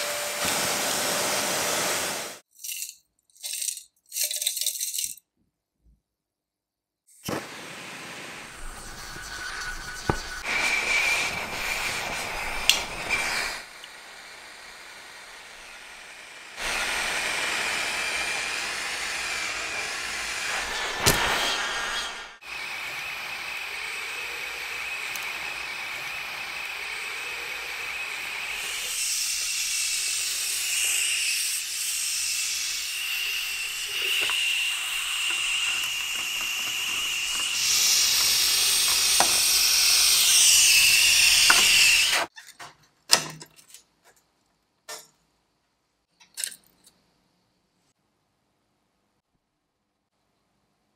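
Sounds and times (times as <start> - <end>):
gas torch flame hissing: 7.2 - 29.5.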